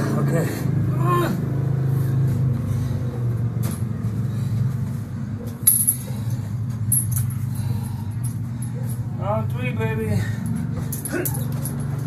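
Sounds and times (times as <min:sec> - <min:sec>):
steady low hum: 0:00.0 - 0:12.0
metal chain clinking: 0:05.6 - 0:09.1, 0:10.2 - 0:12.0.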